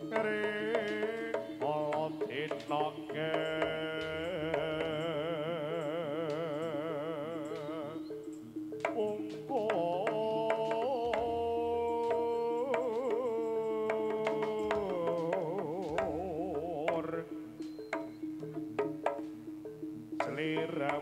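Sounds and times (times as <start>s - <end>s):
high wavering melody: 0.0s - 21.0s
metallophone tones: 0.0s - 21.0s
sharp drum strokes: 7.5s - 21.0s.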